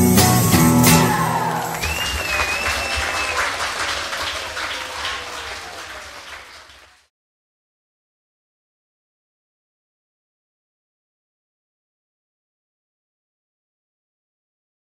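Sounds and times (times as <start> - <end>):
audience applause: 0.9 - 7.1.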